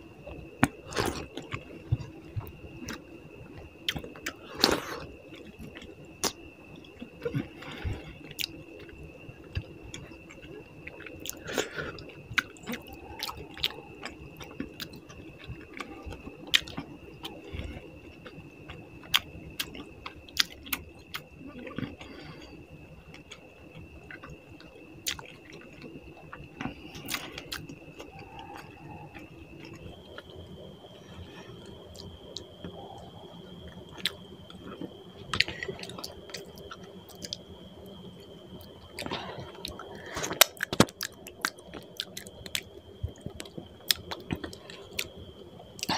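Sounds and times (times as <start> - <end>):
person chewing and lip smacking: 9.5 - 22.2, 23.1 - 30.3, 33.9 - 37.4, 39.0 - 45.1.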